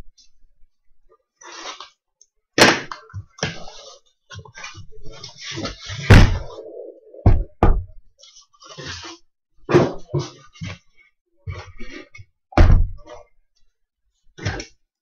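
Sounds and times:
sharp thuds: 6.1 - 6.6, 12.6 - 13.0.

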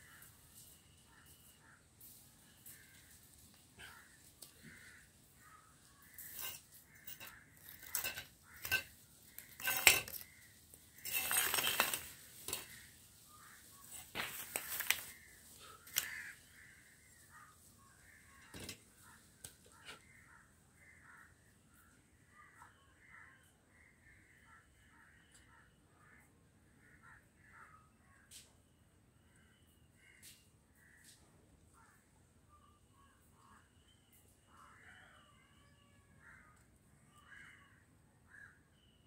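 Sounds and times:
crows cawing: 2.6 - 3.2, 3.8 - 28.2, 36.1 - 38.6
metal fittings and tools clinking: 6.1 - 10.3, 11.0 - 12.8.

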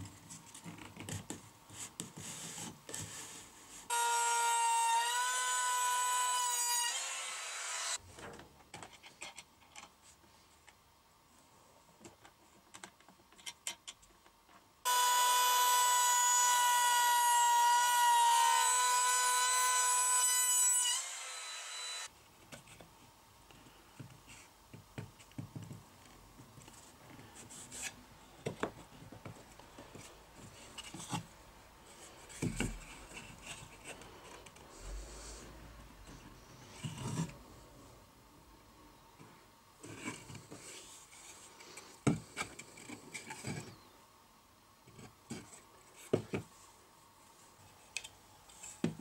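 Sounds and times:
wood router motor whine: 3.9 - 8.0, 14.9 - 22.1.

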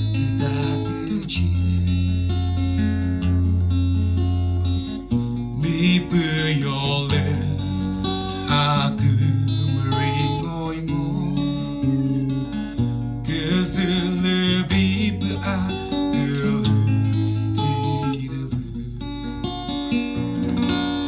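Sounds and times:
man singing: 0.0 - 2.9, 5.6 - 12.0, 13.2 - 19.5
acoustic guitar chords: 0.0 - 21.0.

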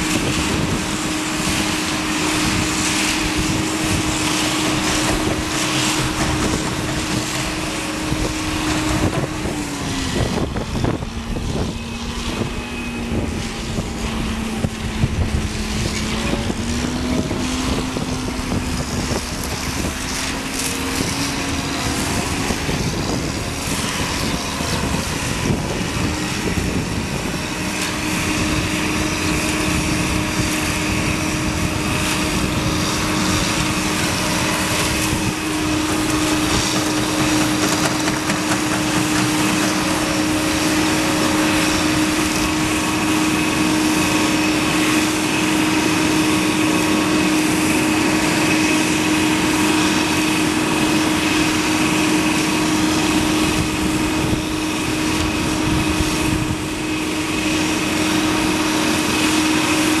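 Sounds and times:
diesel engine running: 0.0 - 60.0.

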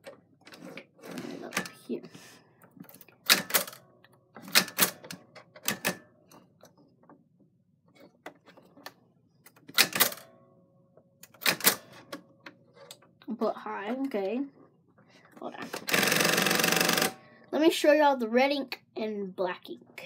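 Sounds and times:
typewriter clacking: 15.8 - 17.2.

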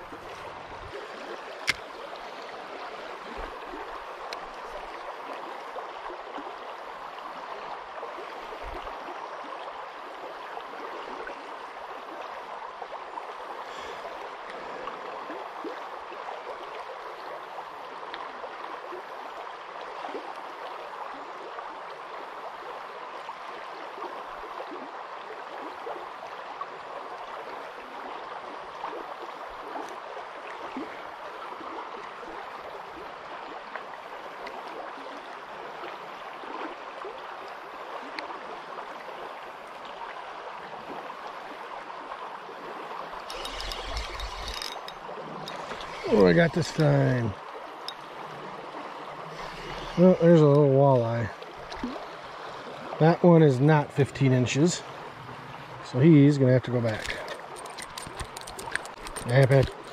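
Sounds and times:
creek water running: 0.0 - 59.9.

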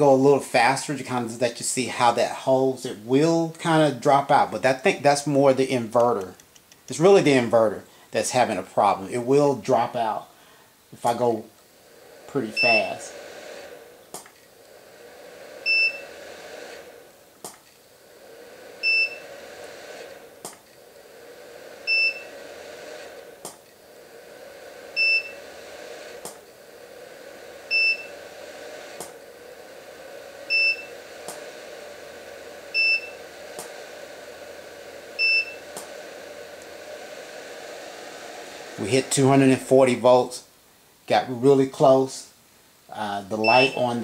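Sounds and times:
flash recycling hum: 0.0 - 44.0
short high ready beep: 43.4 - 43.9.

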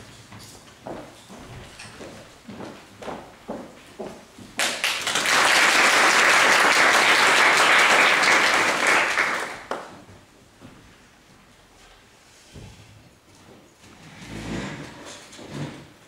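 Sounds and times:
audience applauding: 4.6 - 9.9.

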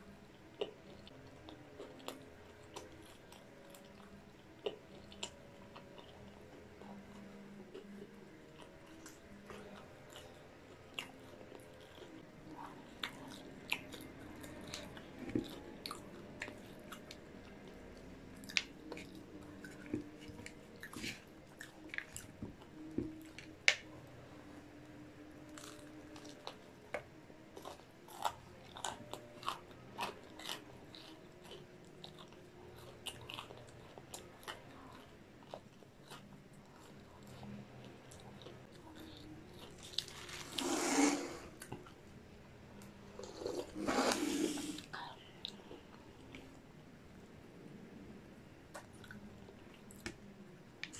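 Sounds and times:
crunchy chewing: 0.4 - 23.5, 25.4 - 42.0.

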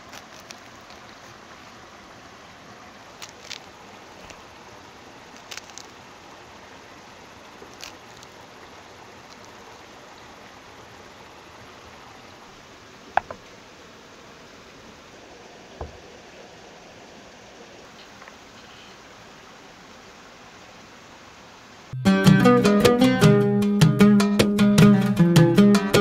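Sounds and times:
fruit rind cracking and tearing: 0.0 - 1.2, 3.2 - 4.4, 5.4 - 6.0, 7.6 - 8.4
steady background hiss: 0.0 - 26.0.

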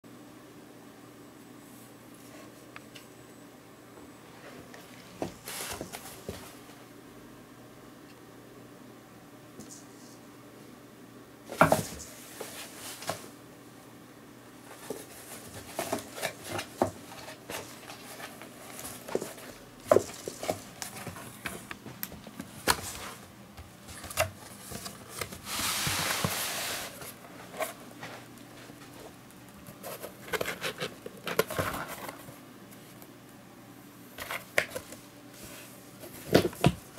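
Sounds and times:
rustling scrape on cardboard: 5.2 - 6.5, 14.7 - 21.6, 23.9 - 29.1, 29.7 - 32.3
cat scratching cardboard box: 29.8 - 32.1.

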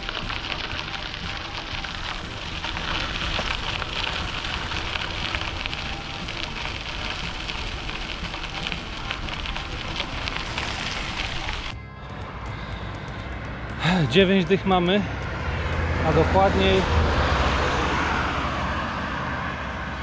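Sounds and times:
bicycle tyres rolling on path: 0.0 - 11.8.

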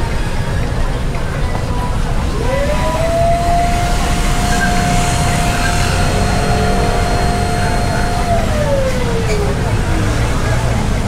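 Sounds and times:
street traffic rumble: 0.0 - 11.0
spinner head whirring: 2.3 - 9.7.

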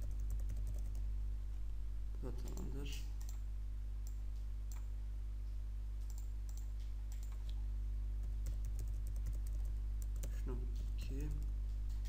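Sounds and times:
keyboard typing: 0.0 - 1.0, 6.0 - 7.4, 8.2 - 10.4
low electrical hum: 0.0 - 12.0
computer mouse clicks: 6.0 - 7.6.

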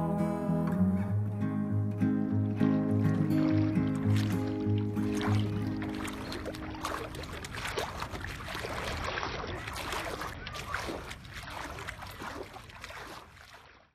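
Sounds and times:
hand splashing in shallow water: 3.2 - 13.9.

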